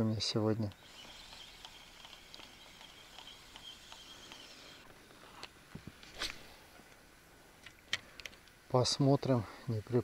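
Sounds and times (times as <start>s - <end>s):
high steady buzz: 0.7s - 5.5s.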